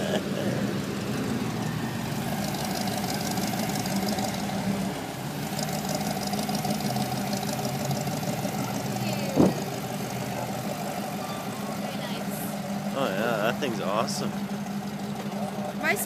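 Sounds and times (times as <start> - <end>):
car engine running at low speed: 0.0 - 16.0.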